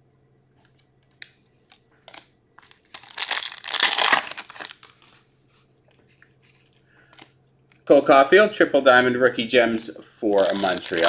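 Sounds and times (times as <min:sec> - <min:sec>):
foil wrapper crinkling: 0:02.1 - 0:05.2, 0:10.3 - 0:11.0.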